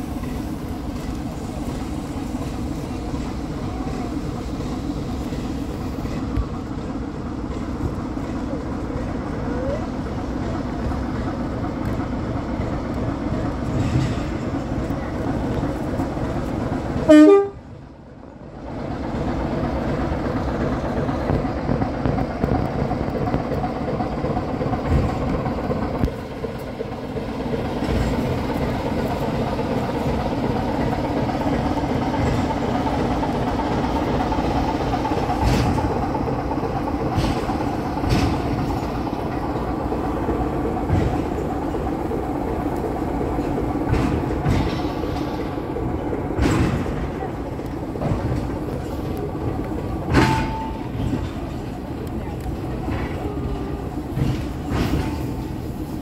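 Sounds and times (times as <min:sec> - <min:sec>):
wheels clanking over rail joints: 0:00.0 - 0:56.0
locomotive horn toot: 0:17.1 - 0:17.7.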